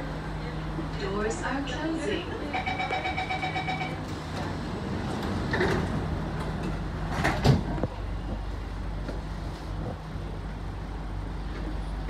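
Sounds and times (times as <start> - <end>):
train humming: 0.0 - 12.0
sliding train doors closing: 3.4 - 9.9.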